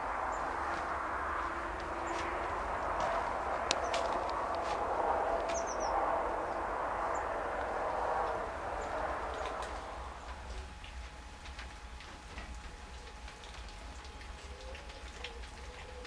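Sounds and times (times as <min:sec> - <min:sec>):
steady outdoor hiss: 0:00.0 - 0:16.0
light ticks: 0:03.0 - 0:04.6.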